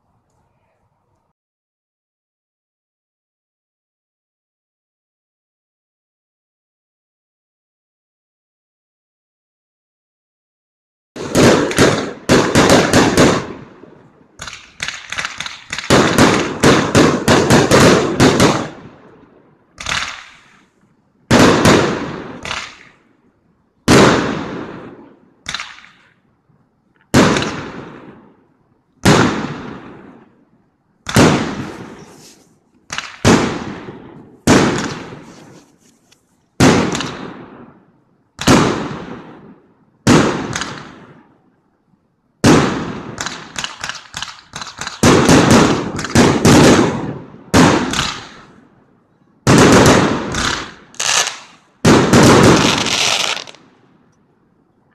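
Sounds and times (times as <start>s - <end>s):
fireworks bangs and crackles: 11.2s - 23.1s, 23.8s - 26.2s, 27.0s - 28.4s, 29.0s - 41.3s, 42.4s - 48.8s, 49.4s - 53.8s.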